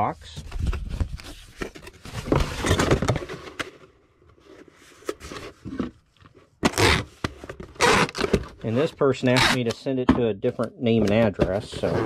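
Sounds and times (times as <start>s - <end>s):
cardboard rubbing and scraping: 10.9s - 12.0s.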